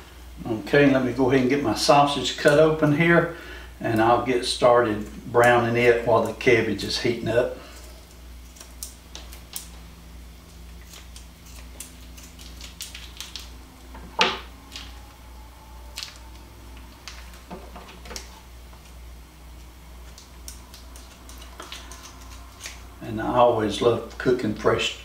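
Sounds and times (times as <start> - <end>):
plastic crinkling: 10.5 - 15.1, 19.6 - 23.0
scissors cutting plastic wrapper: 10.7 - 13.5, 20.1 - 22.9.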